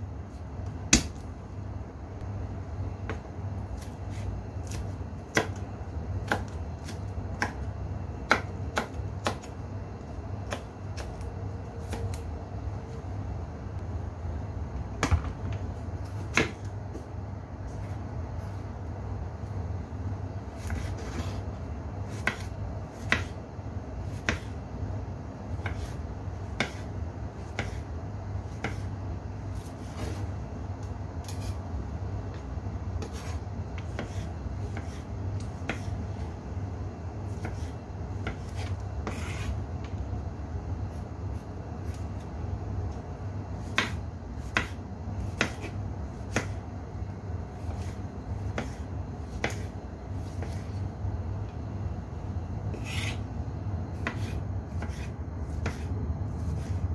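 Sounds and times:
steady low hum: 0.0s - 56.9s
knife slicing tomatoes: 31.2s - 31.6s, 33.0s - 36.0s, 37.3s - 39.6s, 43.6s - 46.6s, 47.6s - 50.8s, 52.7s - 53.2s, 54.0s - 56.8s.

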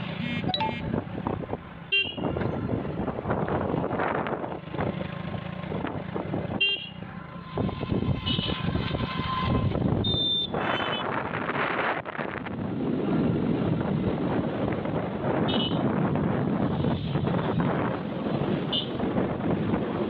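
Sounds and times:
motorcycle road noise: 0.0s - 20.0s
vehicle horn beeps: 0.2s - 1.0s, 8.2s - 8.6s, 10.1s - 11.1s
wind buffeting microphone: 0.8s - 6.6s, 7.5s - 20.0s.

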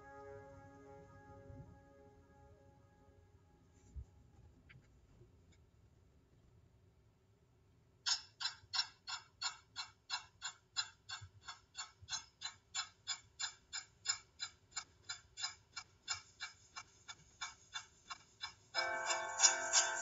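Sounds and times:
steady ticking: 8.1s - 20.0s.

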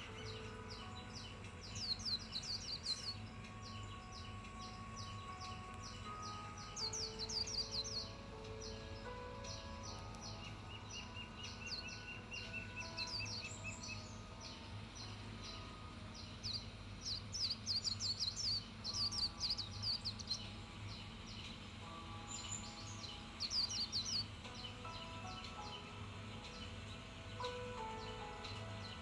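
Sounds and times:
birds chirping: 0.0s - 29.0s.

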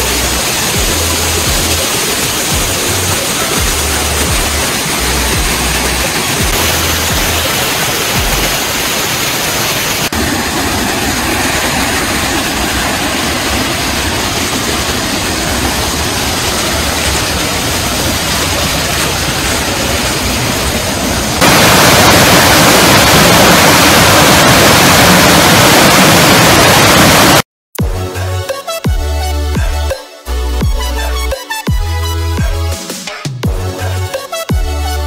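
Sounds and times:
waterfall rushing: 0.0s - 27.4s.

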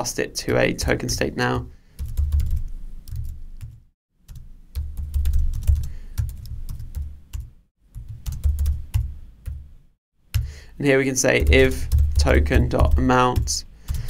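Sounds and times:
computer keyboard typing: 2.0s - 9.6s, 11.4s - 14.0s.

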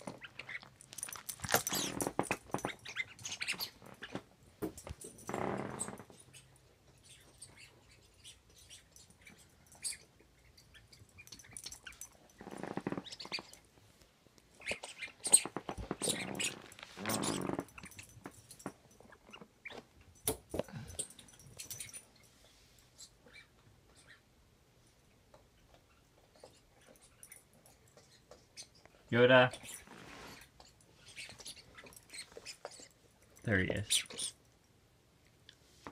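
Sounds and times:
dog toy clicks and rustles: 0.0s - 4.2s.

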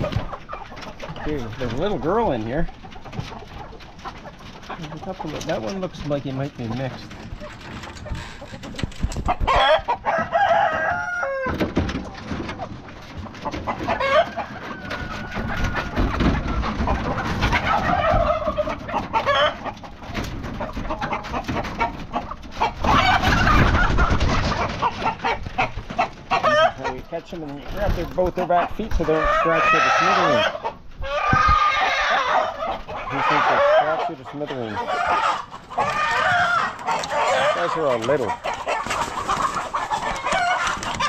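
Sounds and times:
chickens clucking and squawking: 0.0s - 41.0s
roosters crowing: 9.2s - 12.4s, 13.4s - 27.0s, 28.4s - 41.0s
wings flapping: 20.1s - 26.3s, 38.0s - 41.0s.

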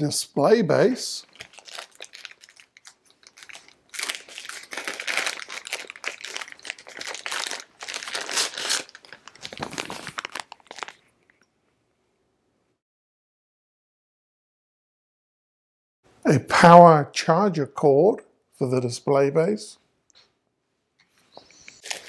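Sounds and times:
plastic bag crinkling: 1.2s - 11.2s.

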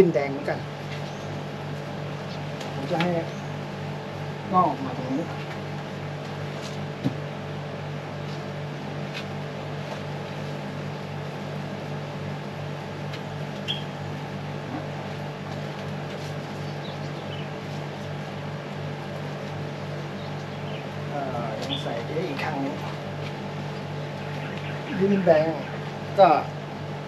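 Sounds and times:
low mechanical hum: 0.0s - 27.0s
plants and soil rustling in pot: 14.8s - 19.8s.

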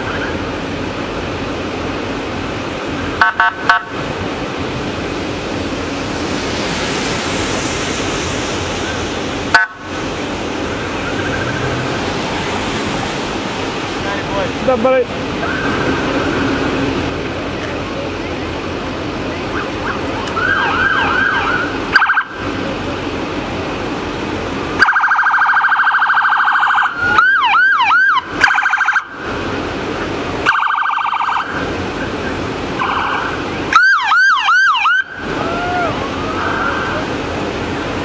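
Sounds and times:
passing vehicles: 0.0s - 38.0s
police sirens warbling and yelping: 8.6s - 38.0s.

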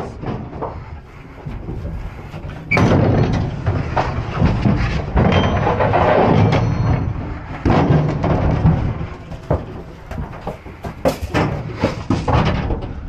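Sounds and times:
rattling in a metal trailer: 0.0s - 13.0s.

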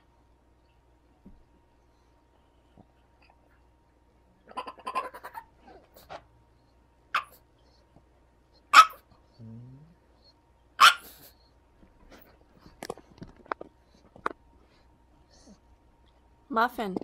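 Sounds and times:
dog barking: 7.2s - 7.4s, 8.7s - 9.0s, 10.8s - 11.3s
dog grunting: 9.4s - 10.0s.

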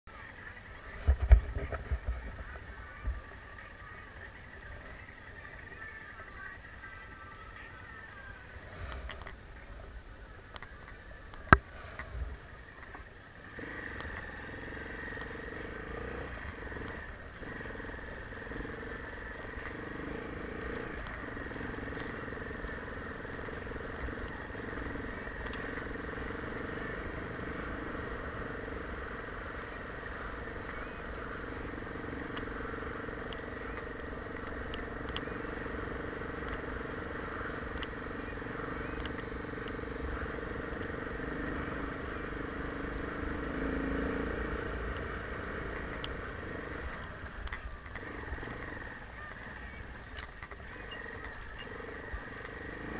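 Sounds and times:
dirt bike engine running: 0.1s - 52.9s
small clicks: 12.8s - 28.6s, 29.2s - 52.9s.

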